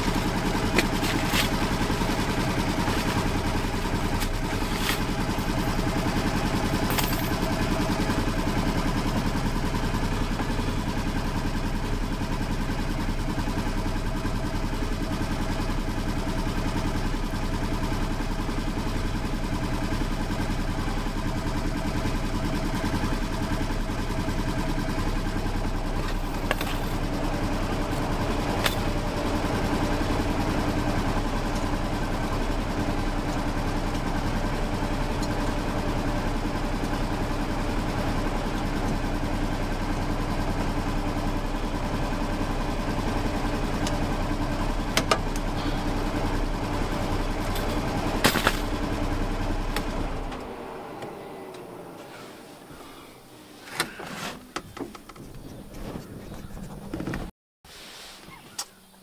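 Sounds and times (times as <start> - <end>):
utility vehicle engine idling: 0.0 - 57.3.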